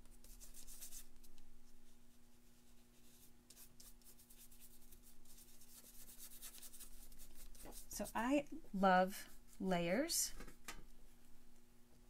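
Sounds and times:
paintbrush swishing on canvas: 0:02.3 - 0:08.3
steady low hum: 0:04.7 - 0:12.0.

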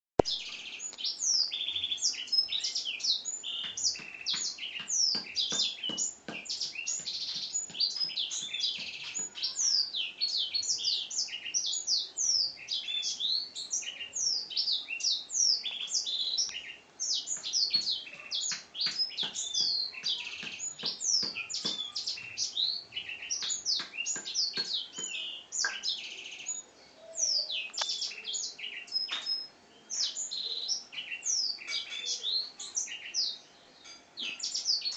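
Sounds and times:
canary singing: 0:00.2 - 0:34.9.

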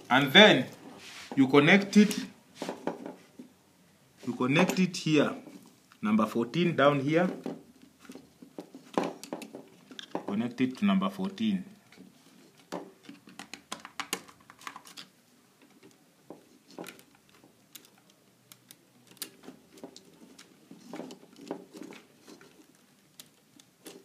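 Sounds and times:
wire clicks and taps: 0:11.2 - 0:24.0.

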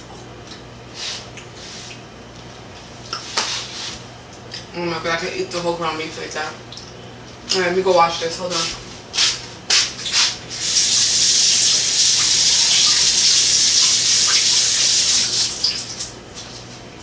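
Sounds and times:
faucet running: 0:10.6 - 0:16.0.

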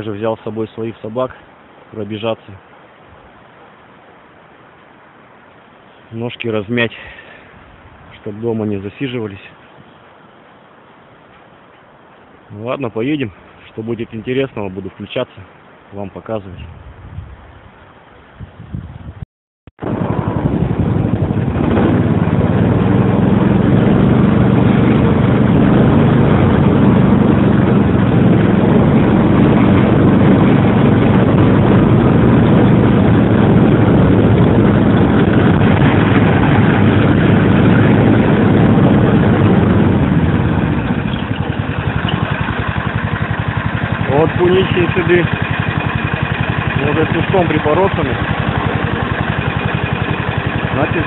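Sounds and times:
snowmobile engine running: 0:20.4 - 0:51.0.

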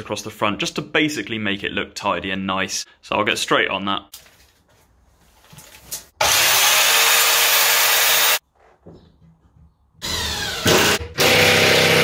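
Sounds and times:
power saw cutting timber: 0:06.2 - 0:08.4, 0:10.0 - 0:12.0.

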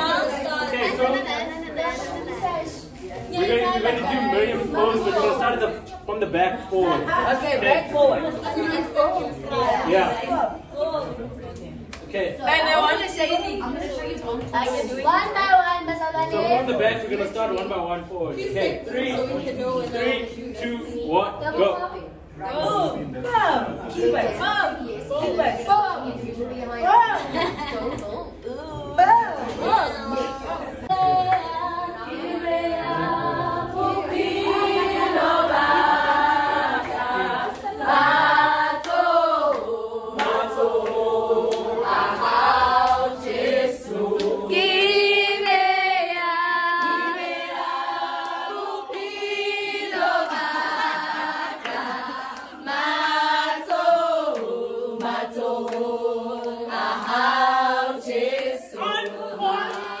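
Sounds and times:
women singing together: 0:00.0 - 0:05.6, 0:22.4 - 1:00.0.

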